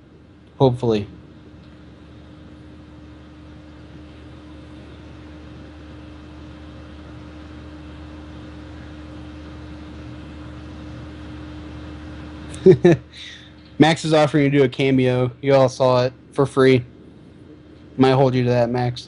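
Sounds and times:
electrical hum: 0.0s - 19.0s
even hiss: 12.5s - 16.9s.

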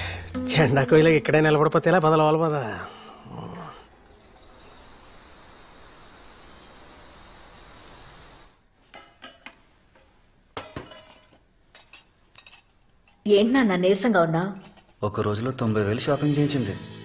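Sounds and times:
crickets chirping: 0.0s - 16.7s
soft hiss: 4.0s - 13.2s
metal dishes clinking: 8.9s - 9.6s, 10.6s - 13.2s, 14.5s - 15.0s.

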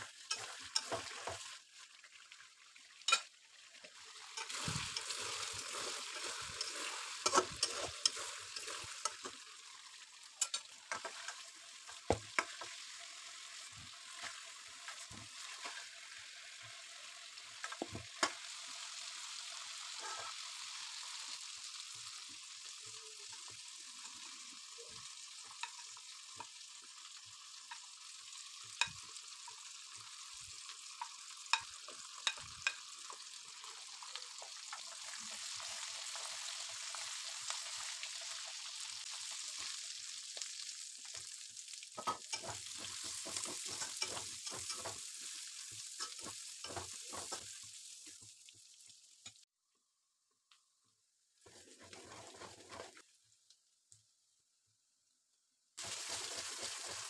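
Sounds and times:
hot oil sizzling: 0.0s - 49.5s, 51.4s - 54.4s, 55.8s - 57.0s
metal spatula clinking and scraping: 0.2s - 1.5s, 3.1s - 3.3s, 4.3s - 9.3s, 10.4s - 11.5s, 42.0s - 45.1s, 46.0s - 47.4s.

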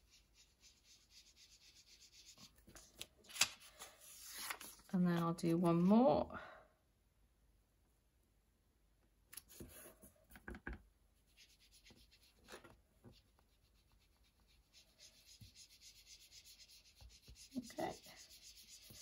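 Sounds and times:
sponge rubbing on card: 0.0s - 2.6s, 11.3s - 19.0s.

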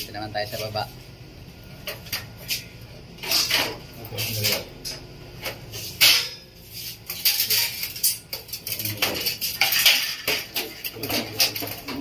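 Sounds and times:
metal grill clinking and knocking: 7.1s - 12.0s.

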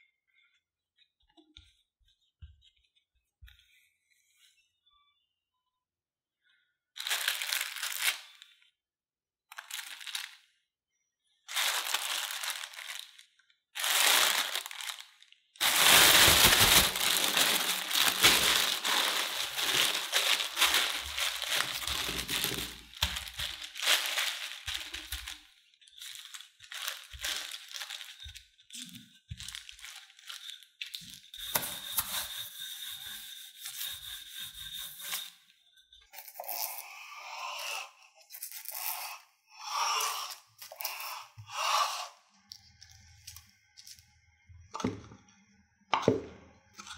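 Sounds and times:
plastic bag crinkling: 7.0s - 8.6s, 9.5s - 10.4s, 11.5s - 31.6s.

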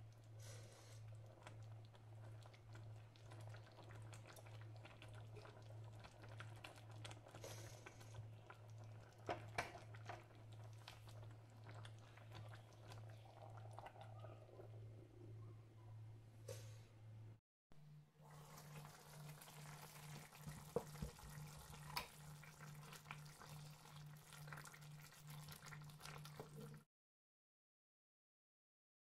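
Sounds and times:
low steady hum: 0.0s - 18.2s.

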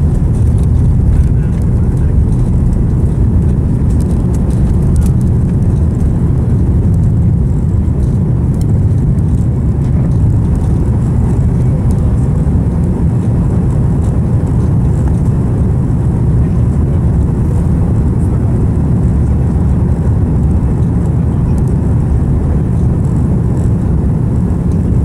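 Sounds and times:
jet engines deep rumble: 0.0s - 25.0s.

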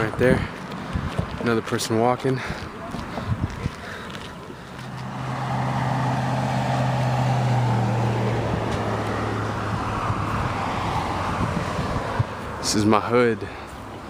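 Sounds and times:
vehicle driving past: 4.8s - 12.6s.

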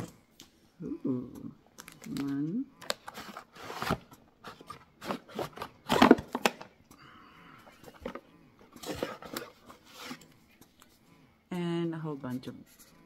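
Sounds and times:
cardboard and plastic rustling: 1.8s - 6.7s, 7.7s - 10.2s.

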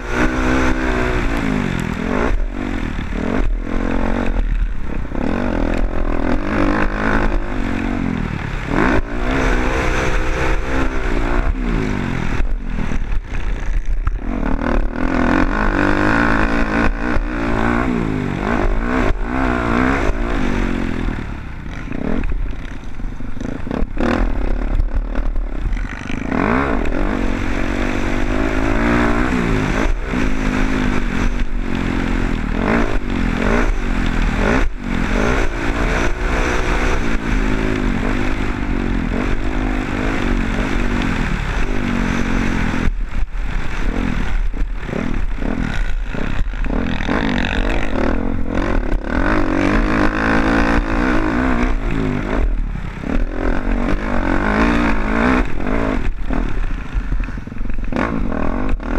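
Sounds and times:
dirt bike engine revving: 0.0s - 58.9s.

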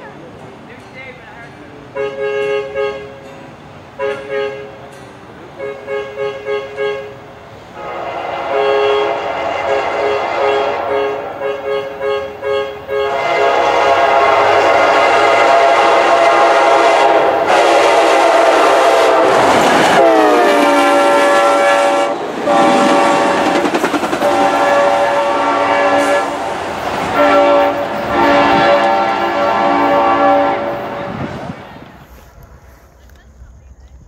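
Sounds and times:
train wheels clattering on rails: 0.1s - 6.8s, 13.1s - 34.0s
train horn: 1.9s - 3.3s, 4.0s - 4.8s, 5.6s - 31.4s.

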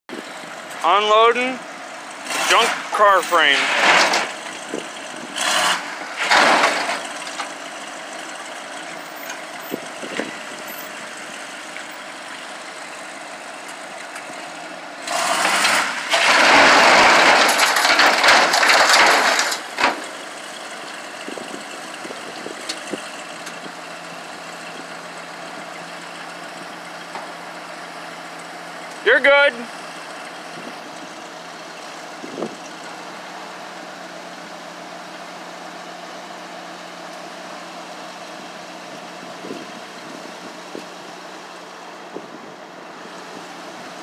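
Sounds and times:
heavy engines running: 0.1s - 44.0s
car frame dragged on steel flatbed: 3.4s - 7.2s, 15.0s - 20.1s.

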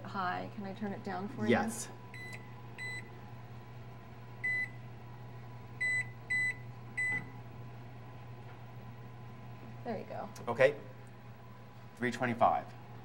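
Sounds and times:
oven control panel beeps: 2.1s - 3.1s, 4.4s - 4.8s, 5.8s - 7.4s.

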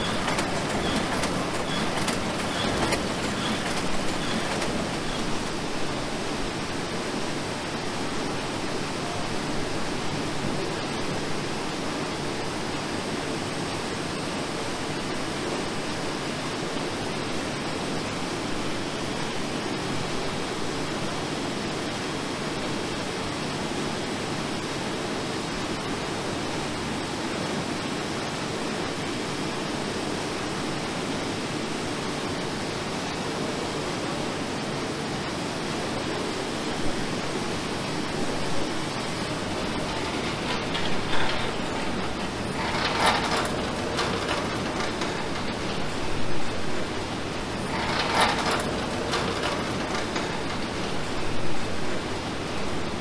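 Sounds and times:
steady machine noise: 0.0s - 7.0s, 36.7s - 52.4s.

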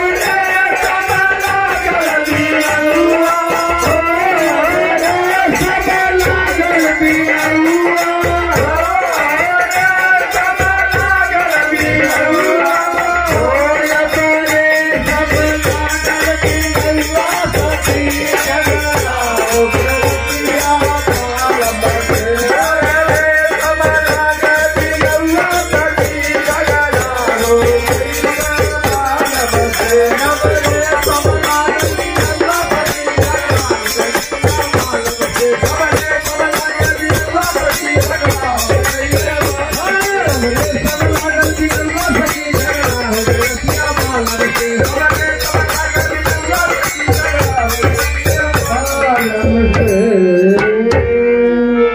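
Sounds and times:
hand cymbals clashing: 0.0s - 50.7s
men singing folk song: 0.0s - 51.9s
low repeating beat: 34.4s - 50.0s.

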